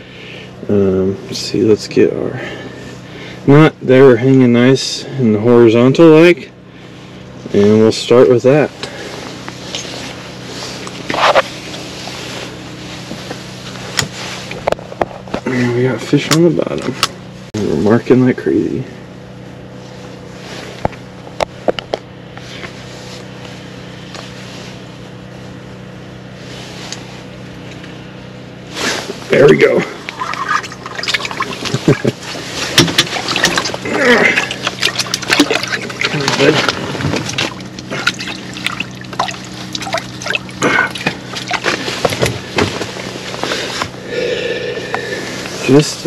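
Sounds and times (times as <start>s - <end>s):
low mechanical hum: 0.0s - 46.0s
water splashes and drips: 30.1s - 31.8s, 34.4s - 36.7s, 37.3s - 41.7s.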